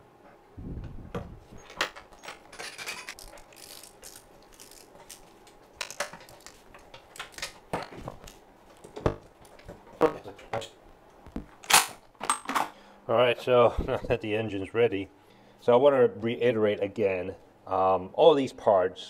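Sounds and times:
metal tools clinking: 1.6s - 8.4s.

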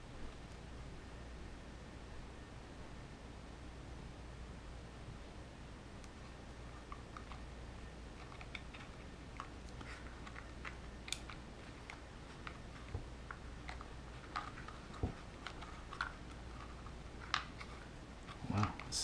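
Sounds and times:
low steady hum: 0.0s - 19.0s
light rustles of plastic and wires: 8.1s - 19.0s
small plastic clicks: 8.2s - 12.6s.

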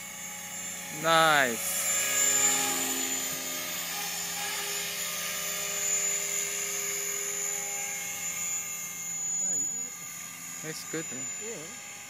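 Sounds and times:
model helicopter whine: 0.0s - 12.0s
high-pitched tone: 1.4s - 5.0s, 8.5s - 11.8s.

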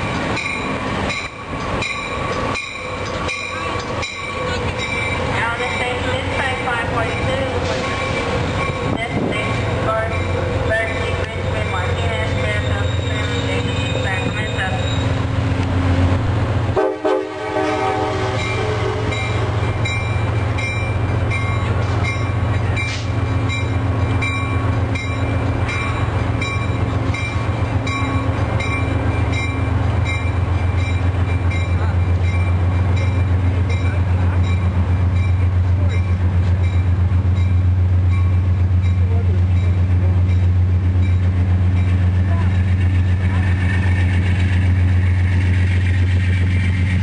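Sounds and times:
diesel locomotive droning: 0.0s - 47.0s.

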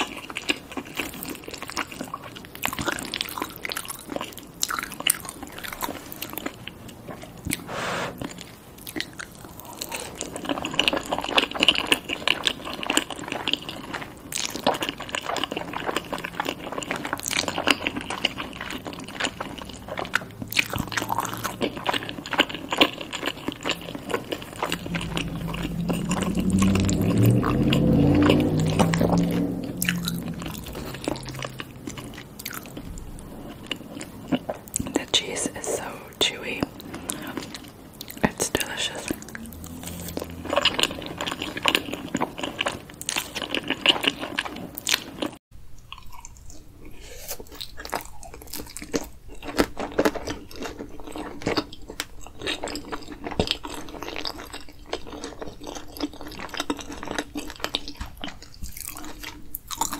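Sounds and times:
biting and chewing: 0.0s - 59.9s
low pitched sound: 24.2s - 33.8s, 38.5s - 42.4s.

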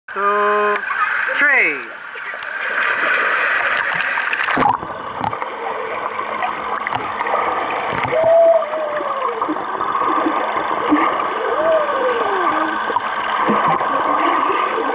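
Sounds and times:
water splashing: 0.8s - 14.9s
underwater bubbles gurgling: 1.9s - 14.9s
muffled wavering tone: 4.6s - 14.9s.

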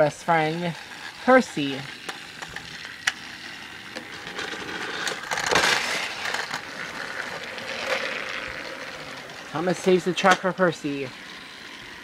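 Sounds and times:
toy electric motor running: 0.0s - 12.0s
plastic toy clicking and rattling: 0.3s - 11.9s.

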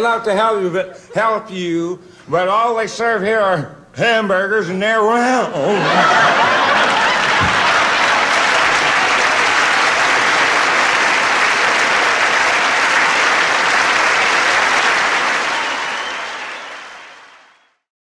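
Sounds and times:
audience applauding: 5.9s - 17.8s.

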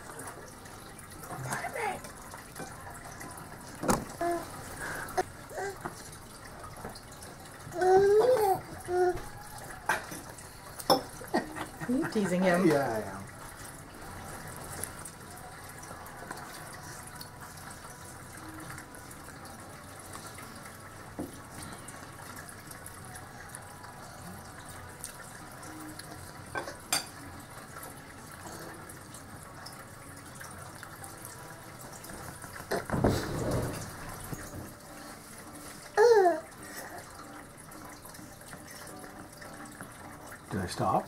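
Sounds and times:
trickle of running water: 0.0s - 41.0s.

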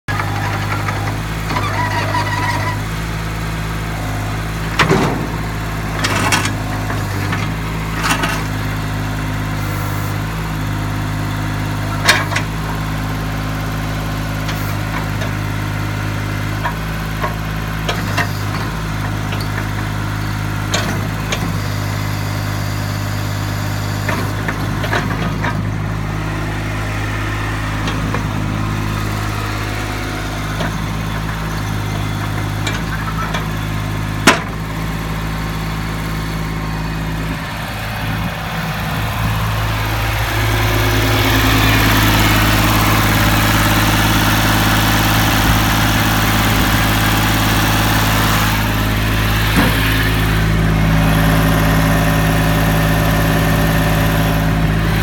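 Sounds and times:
excavator engine running: 0.0s - 55.0s
sharp knocks and clanks: 34.2s - 34.6s.

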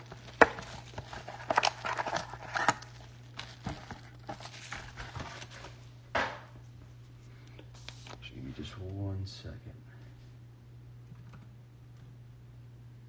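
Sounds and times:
foil pack rustling: 0.0s - 5.9s
steady low hum: 0.0s - 13.0s.

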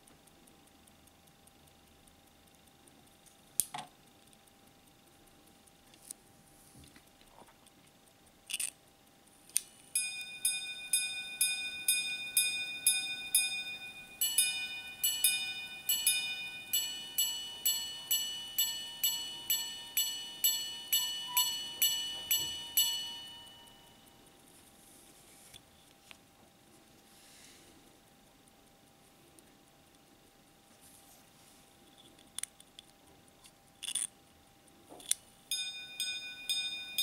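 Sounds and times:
watch gongs striking: 10.0s - 24.0s, 35.5s - 37.0s.

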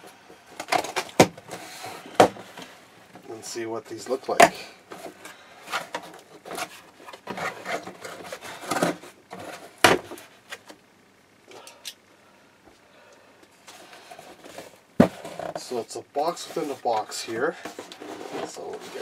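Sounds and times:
cardboard flaps scraping: 5.0s - 10.3s, 16.3s - 19.0s.

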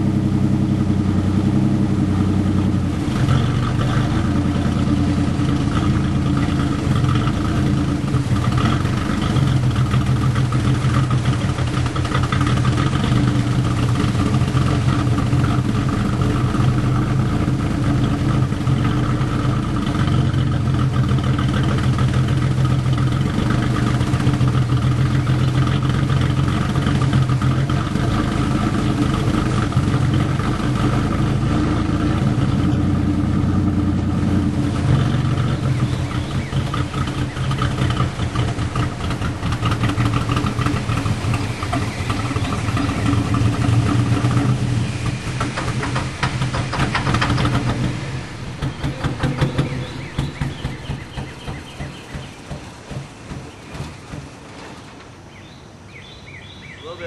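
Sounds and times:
engine running through loud exhaust: 0.0s - 54.6s.

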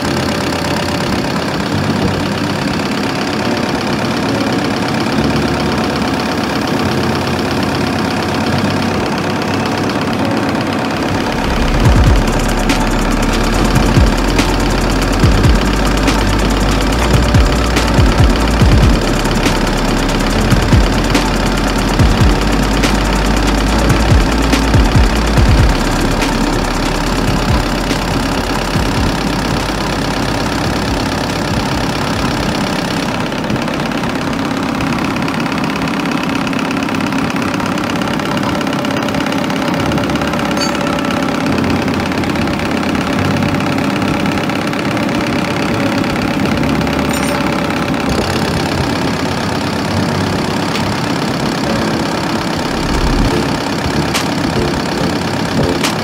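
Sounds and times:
injection pump test bench running: 0.0s - 56.0s.

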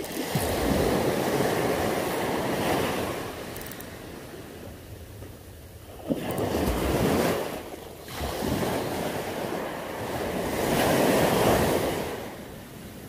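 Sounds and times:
surf breaking on beach: 0.0s - 3.5s
wind on microphone: 0.0s - 13.0s.

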